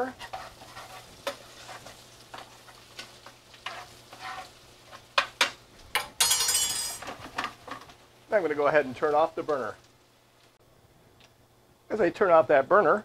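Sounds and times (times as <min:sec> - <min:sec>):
metal spoon scraping a pan: 0:00.0 - 0:05.5
food sizzling in a pan: 0:00.0 - 0:10.6.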